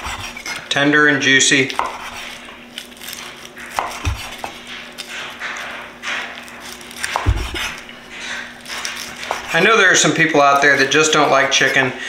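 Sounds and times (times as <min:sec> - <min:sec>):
knife crunching through crispy skin: 0:00.0 - 0:00.7, 0:01.5 - 0:11.8
knife knocking on wooden board: 0:03.8 - 0:04.6, 0:07.1 - 0:08.0.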